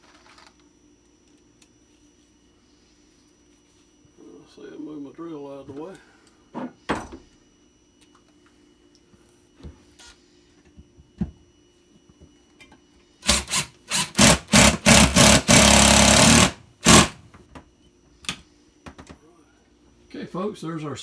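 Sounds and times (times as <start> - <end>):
cordless drill driving a screw: 13.2 - 17.2.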